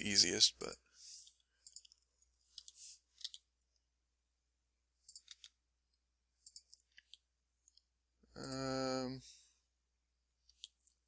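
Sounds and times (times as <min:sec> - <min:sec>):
keyboard and mouse clicks: 0:01.2 - 0:03.8, 0:05.0 - 0:05.6, 0:06.4 - 0:08.6, 0:10.4 - 0:11.0.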